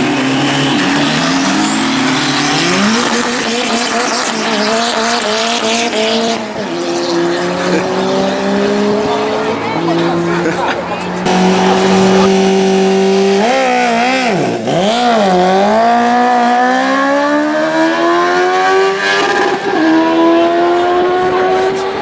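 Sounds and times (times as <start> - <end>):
motorcycle engine revving: 0.0 - 22.0.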